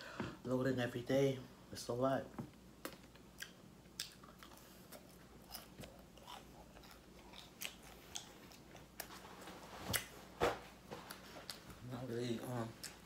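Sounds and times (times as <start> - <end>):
chewing crispy food: 3.1 - 10.2.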